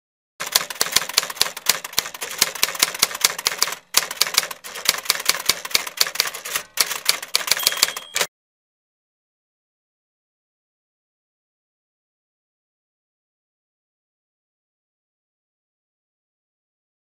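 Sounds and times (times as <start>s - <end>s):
keyboard typing clicks: 0.4s - 8.3s.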